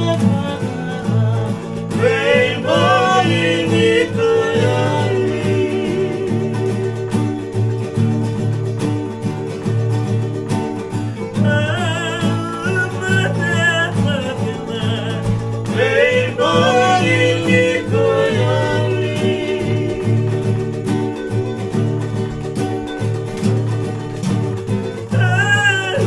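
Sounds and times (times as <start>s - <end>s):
men singing: 0.0s - 7.7s, 11.3s - 21.2s, 25.1s - 26.0s
acoustic guitars strumming: 0.0s - 26.0s.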